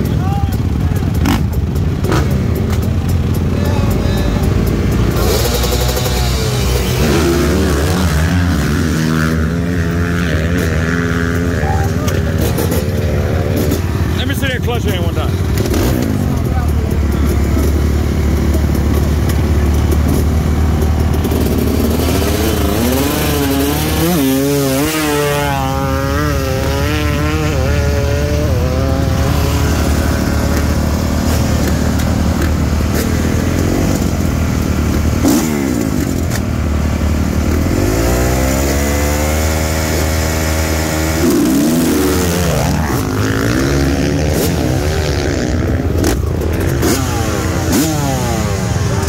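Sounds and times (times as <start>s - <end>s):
dirt bike engine idling: 0.0s - 49.0s
dirt bikes revving past: 0.0s - 49.0s.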